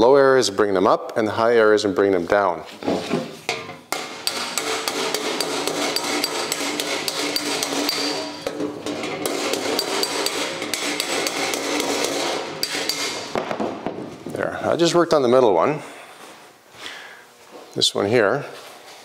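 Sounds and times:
hammer tapping sheet metal: 3.5 - 14.0.

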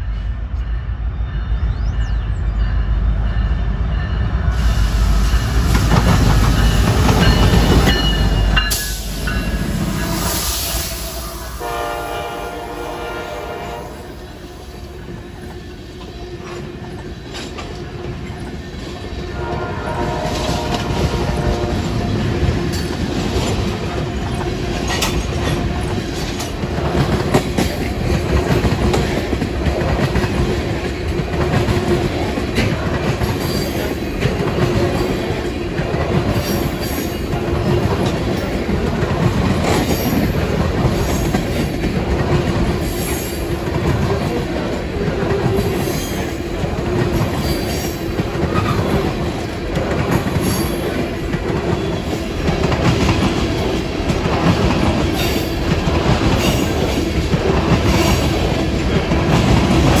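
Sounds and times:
train wheels rumbling: 0.0 - 60.0.

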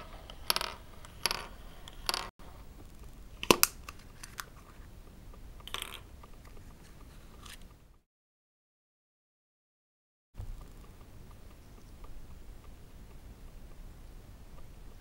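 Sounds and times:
plastic capsule snapping open: 3.4 - 4.5.

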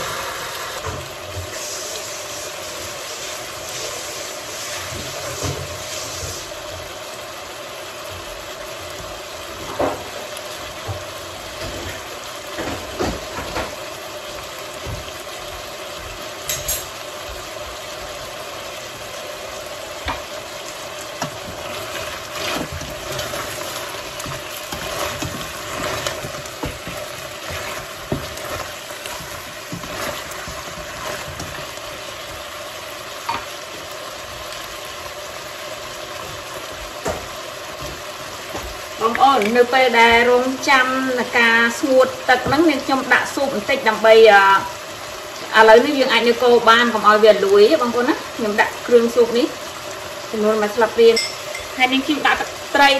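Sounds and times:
chicken wings sizzling in a pot: 0.0 - 52.9
spatula scraping and knocking pot: 21.2 - 31.7.

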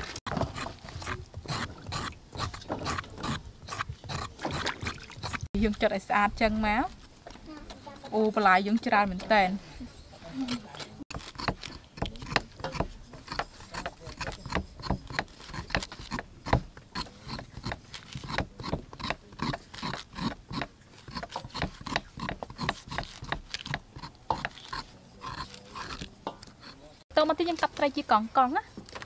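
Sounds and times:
knife slicing pineapple rind: 0.3 - 5.5, 10.4 - 27.0.

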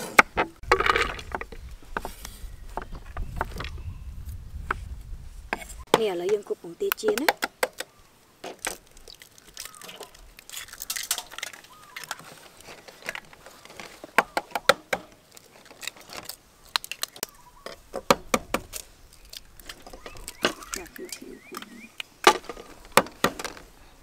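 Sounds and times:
eggshells cracking and peeling: 8.5 - 23.6.

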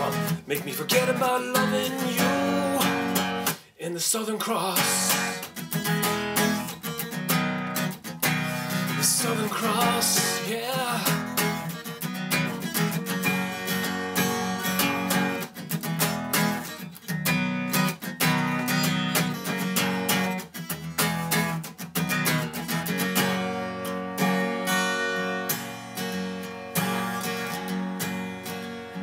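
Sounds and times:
acoustic guitar strumming: 0.0 - 29.0.

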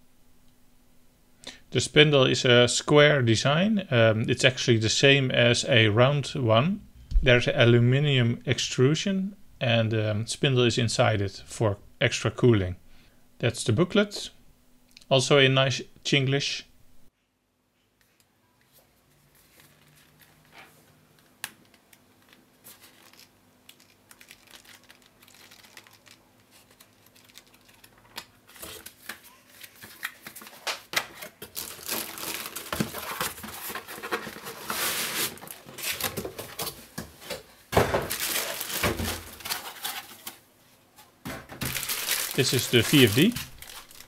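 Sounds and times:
foam packing scraping: 31.5 - 36.6
cardboard box rustling: 31.5 - 36.8.

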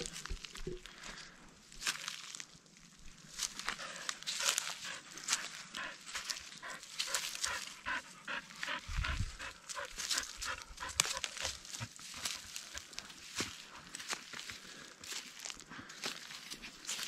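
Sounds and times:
footsteps in dry grass and stones: 0.0 - 17.0
dog panting: 3.7 - 14.0.

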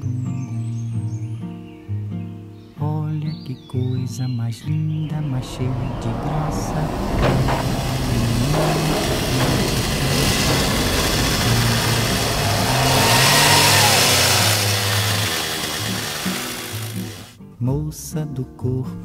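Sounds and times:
engine revving: 5.0 - 17.4.

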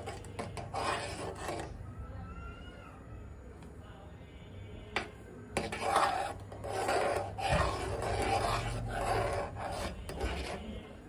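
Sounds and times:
metal spoon scraping a pan: 0.0 - 1.8, 5.0 - 11.0.

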